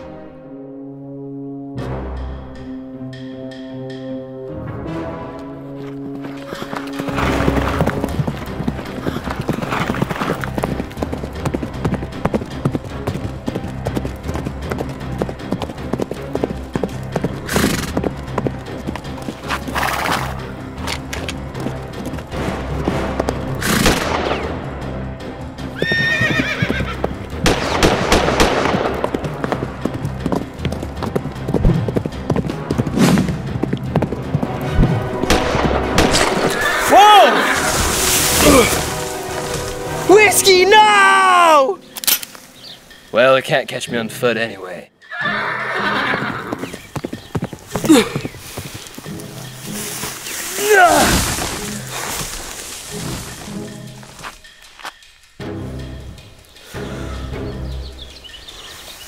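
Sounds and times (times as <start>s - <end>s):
music: 0.0s - 59.0s
hooves clip-clopping: 5.2s - 24.2s, 25.1s - 43.9s, 45.0s - 57.0s
galloping horse hoofbeats: 5.4s - 24.2s, 25.5s - 36.9s, 45.1s - 55.1s
horse whinnying: 17.4s - 18.0s, 25.7s - 27.1s, 36.4s - 38.8s, 45.0s - 46.9s.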